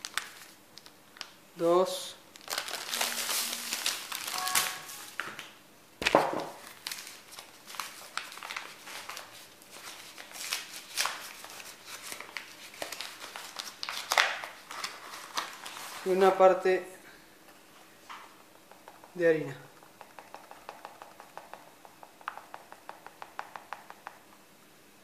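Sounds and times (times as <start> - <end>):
food packet rustling and crinkling: 0.0 - 1.4, 2.3 - 16.2.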